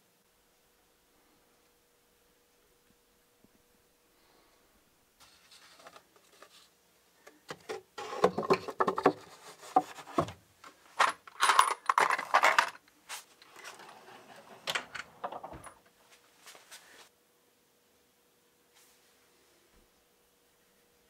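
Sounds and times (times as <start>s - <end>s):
metallic jingling of washers: 11.0s - 12.7s.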